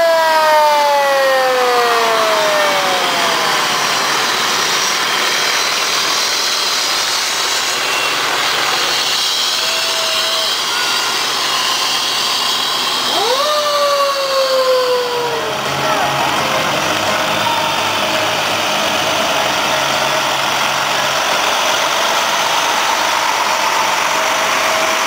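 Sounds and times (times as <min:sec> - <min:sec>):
fire truck passing close: 0:00.0 - 0:25.0
mechanical siren: 0:00.0 - 0:25.0.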